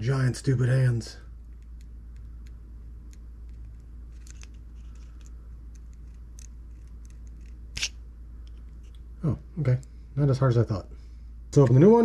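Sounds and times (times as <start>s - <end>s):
steady low hum: 0.0s - 12.0s
small plastic clicks: 1.5s - 9.0s
fingernail scratches: 1.6s - 8.0s.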